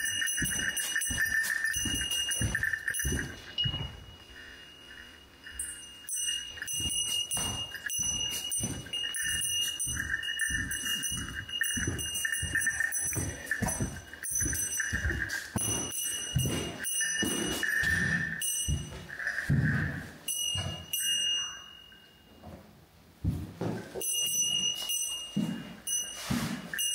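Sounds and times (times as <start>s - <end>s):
footsteps crunching over debris: 0.0s - 20.2s
high electronic ringing jingle: 0.0s - 22.3s.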